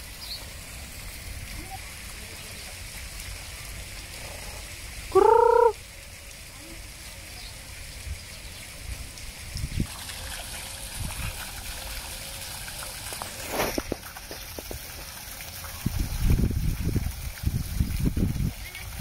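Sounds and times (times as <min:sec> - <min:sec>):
bird call: 0:05.2 - 0:05.8.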